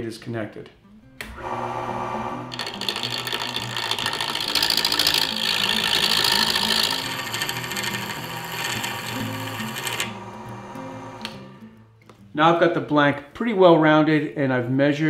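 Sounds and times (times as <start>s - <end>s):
background music: 0.0s - 15.0s
lathe tool cutting wood: 1.3s - 11.6s.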